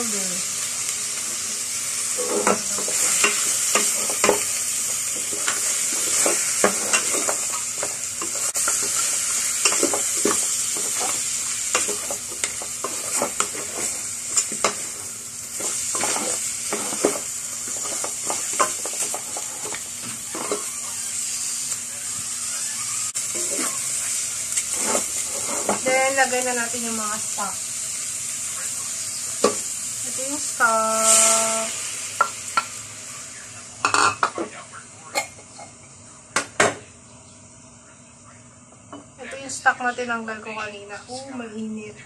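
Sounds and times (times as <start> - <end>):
meat sizzling in a pot: 0.0 - 37.8
wooden spatula scraping a pot: 15.6 - 20.7, 24.6 - 25.9.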